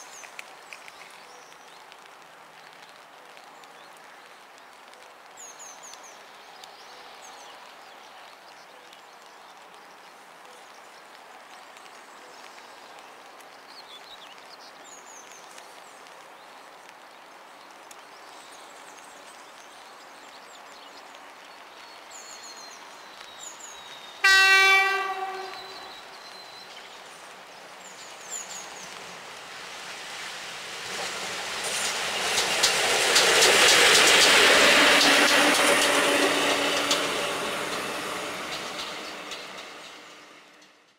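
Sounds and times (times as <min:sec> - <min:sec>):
faint birdsong: 0:00.0 - 0:40.9
train horn blast: 0:24.2 - 0:26.0
train wheels clacking on rails: 0:30.8 - 0:40.9.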